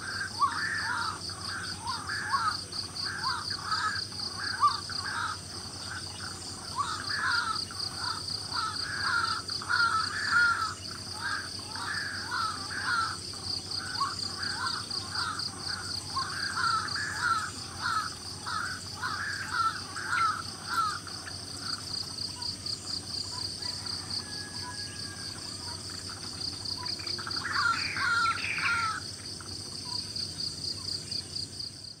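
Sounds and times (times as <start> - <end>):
birds calling harsh notes: 0.0 - 21.8, 26.0 - 29.0.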